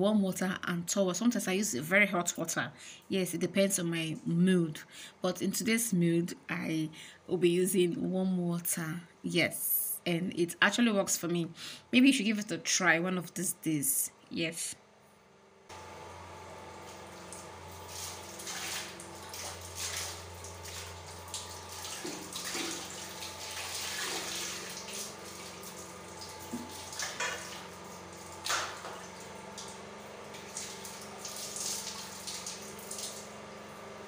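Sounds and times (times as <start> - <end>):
water running off cloth: 16.6 - 33.6
water splashing in a bowl: 16.8 - 33.3.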